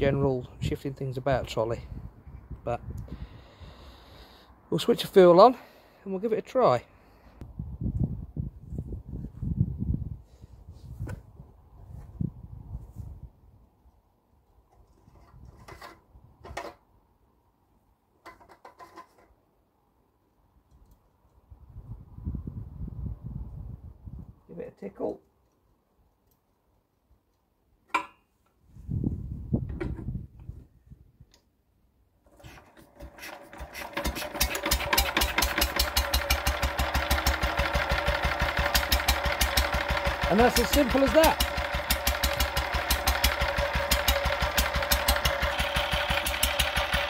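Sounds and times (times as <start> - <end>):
stationary engine starting: 32.2 - 47.0.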